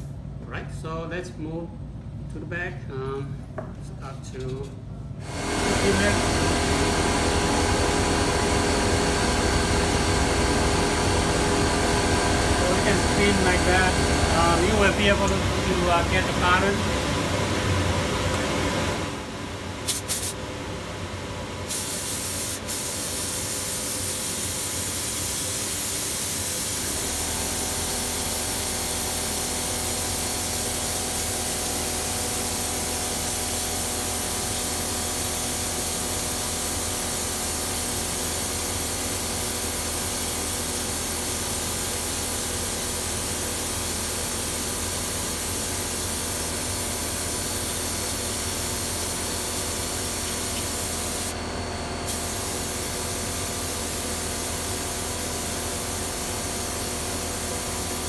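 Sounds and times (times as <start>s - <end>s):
spray gun hissing: 19.9s - 20.4s, 21.7s - 39.6s, 46.1s - 51.3s, 52.1s - 58.0s.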